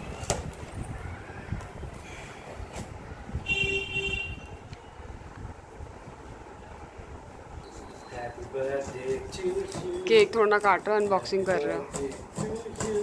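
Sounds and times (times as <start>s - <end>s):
vehicle horn honking: 3.4s - 4.7s
utility knife cutting packing tape: 12.0s - 13.0s.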